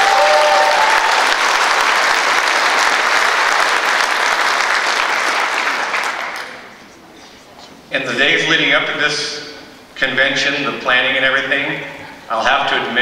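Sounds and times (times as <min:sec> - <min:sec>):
brief cheer: 0:00.0 - 0:01.4
audience applauding: 0:00.0 - 0:06.7.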